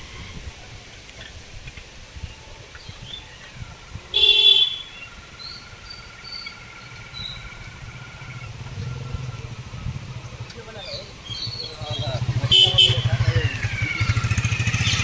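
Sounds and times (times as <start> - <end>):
low engine rumble: 0.0 - 15.0
vehicle horn honk: 4.2 - 5.0, 12.5 - 13.3.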